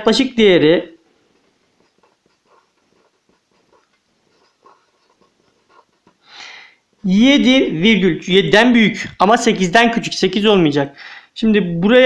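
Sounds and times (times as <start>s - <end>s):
marker scratching on paper: 1.2s - 6.4s.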